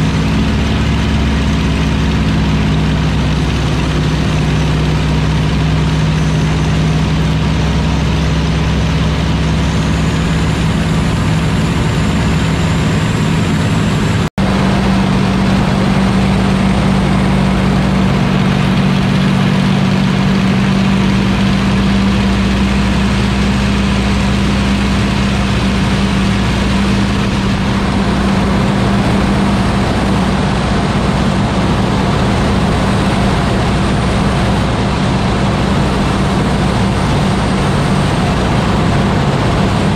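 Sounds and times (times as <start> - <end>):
aircraft engine drone: 0.0 - 39.9
wind rush: 0.0 - 39.9.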